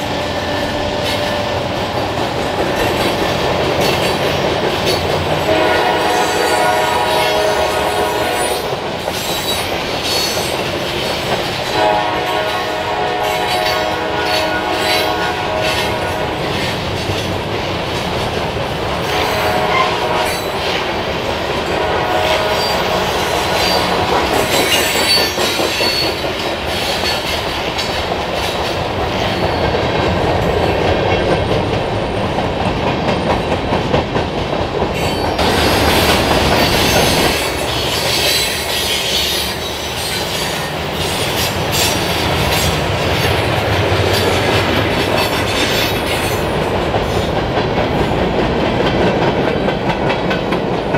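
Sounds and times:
clickety-clack over rail joints: 0.0 - 50.9
train wheels rumbling on rail: 0.0 - 50.9
wheel squeals: 23.6 - 27.4.

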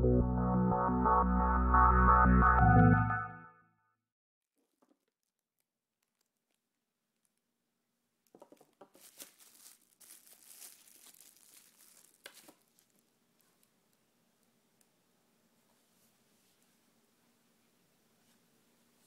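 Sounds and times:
plastic bag crinkling: 4.6 - 7.4, 8.4 - 13.7.

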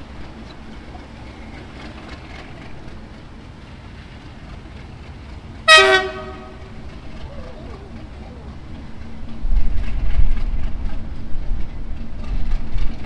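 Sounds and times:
diesel locomotive rumbling: 0.0 - 13.0
train horn blast: 5.6 - 7.0.

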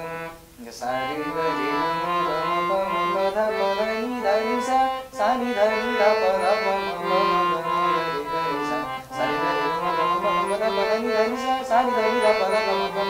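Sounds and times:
harmonium playing scale: 0.0 - 13.0
man singing: 0.0 - 13.0.

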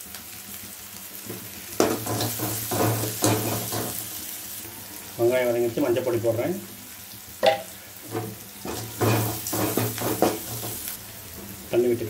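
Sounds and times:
onions frying in oil: 0.0 - 12.0
spatula scraping and stirring: 1.3 - 4.2, 8.0 - 11.0.

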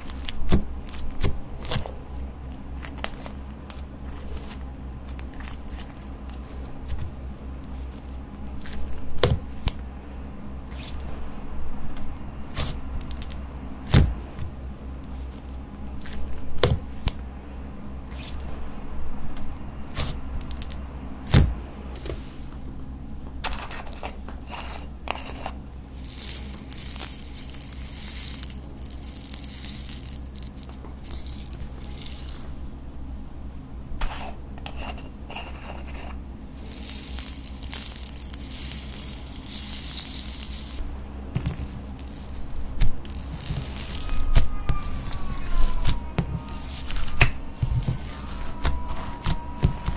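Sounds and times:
sticky crackly hiss: 41.6 - 45.9.

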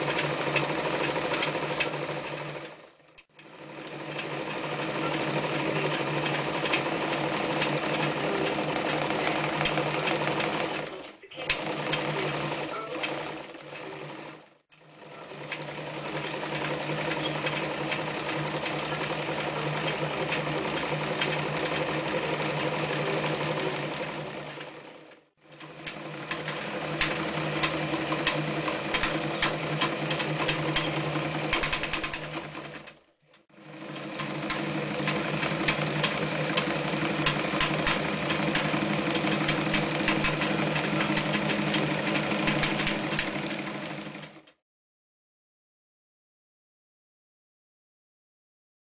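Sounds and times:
sewing machine stitching: 0.0 - 44.6.

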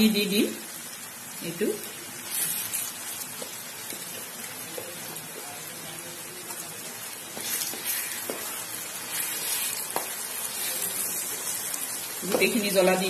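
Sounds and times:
paste sizzling in hot oil: 0.5 - 13.0
wooden spatula stirring: 6.5 - 12.6.

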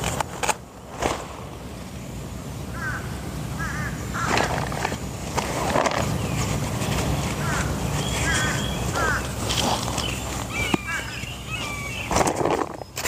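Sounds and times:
tent flap rustling: 0.9 - 1.4
birds calling: 2.0 - 13.0.

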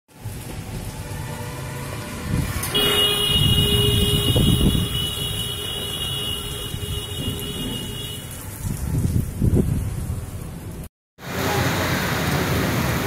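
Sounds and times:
rain hissing: 0.1 - 13.0
storm wind gusting: 1.9 - 5.4, 6.5 - 10.9.

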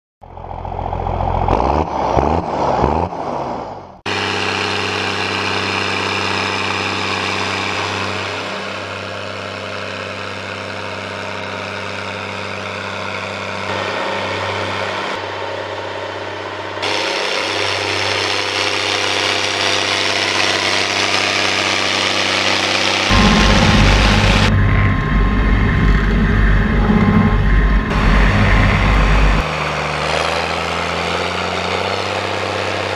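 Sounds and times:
tractor engine droning: 0.2 - 32.9
sound sweeping up and down in pitch: 23.1 - 29.5.

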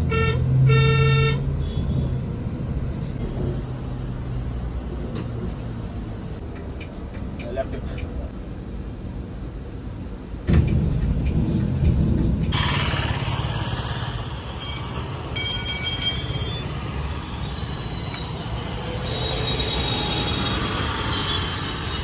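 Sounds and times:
bus rumbling in traffic: 0.0 - 22.0
tyres on road: 0.0 - 22.0
coach engine pulling away: 12.4 - 22.0
high squealing tones: 12.5 - 22.0.

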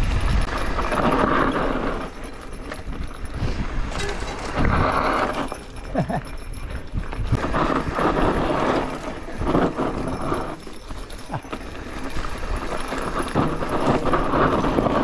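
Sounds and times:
bike rattling over bumps: 0.0 - 15.0
tyres crunching on dirt: 0.0 - 15.0
bushes swishing and scraping: 7.1 - 15.0.

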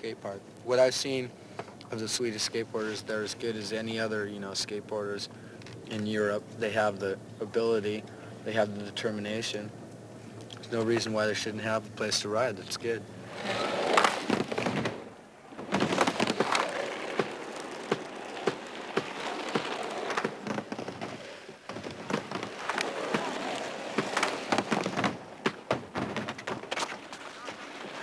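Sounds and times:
steady noisy hiss: 0.0 - 28.0.

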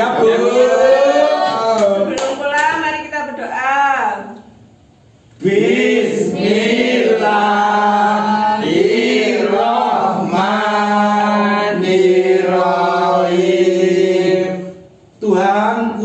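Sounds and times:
group chanting in unison: 0.0 - 2.1, 5.4 - 16.0.

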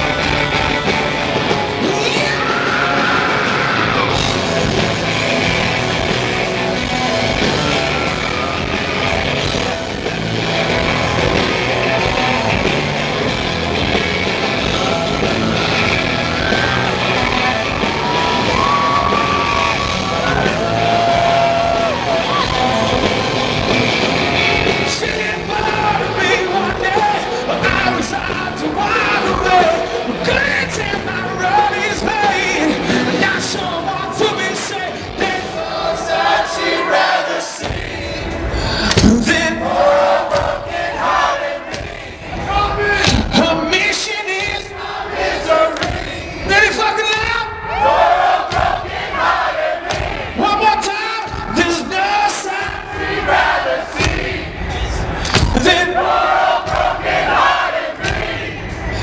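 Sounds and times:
electric guitars: 0.0 - 35.8
drums at a steady beat: 0.0 - 59.0.

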